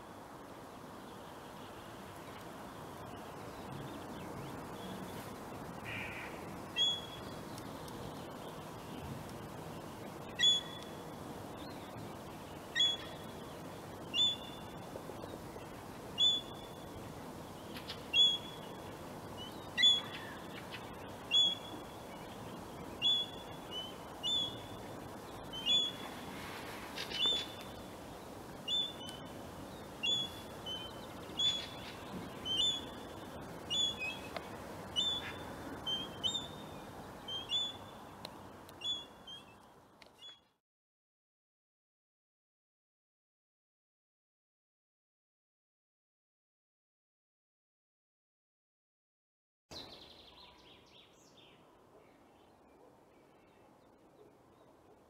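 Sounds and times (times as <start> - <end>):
faint background hiss: 0.0 - 40.6, 49.7 - 55.0
bird calling: 5.8 - 7.4, 10.3 - 11.0, 12.7 - 13.4, 14.1 - 14.8, 16.2 - 16.8, 17.7 - 18.8, 19.4 - 22.0, 23.0 - 24.8, 25.4 - 26.1, 26.9 - 27.9, 28.6 - 38.0.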